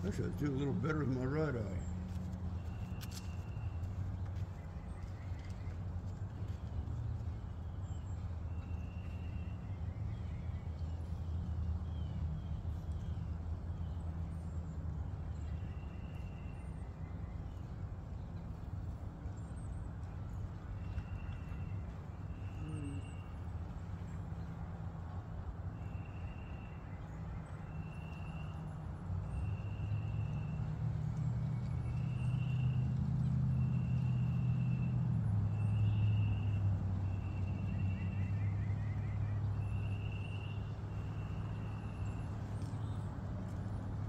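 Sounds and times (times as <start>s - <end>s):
vehicle engine hum: 0.0s - 44.0s.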